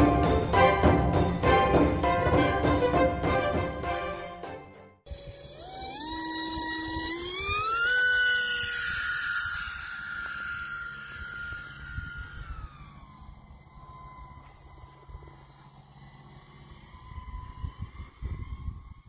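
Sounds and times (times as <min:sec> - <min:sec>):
background music: 0:00.0 - 0:05.0
electric motor and propeller whining: 0:00.0 - 0:19.0.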